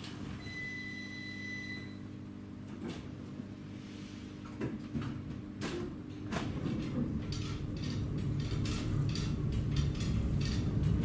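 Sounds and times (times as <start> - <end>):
low train equipment hum: 0.0 - 11.0
electronic warning beep: 0.4 - 2.0.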